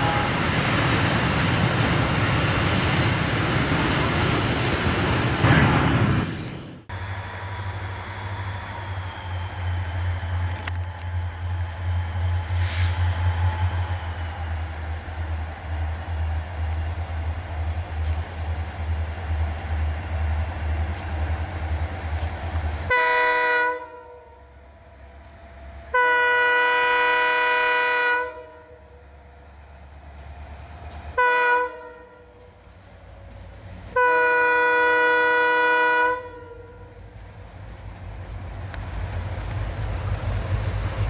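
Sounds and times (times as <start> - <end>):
locomotive horn blasts: 0.0 - 0.5, 22.9 - 24.6, 25.9 - 29.0, 31.1 - 32.4, 33.9 - 37.0
low engine rumble: 6.8 - 23.2, 34.9 - 41.0.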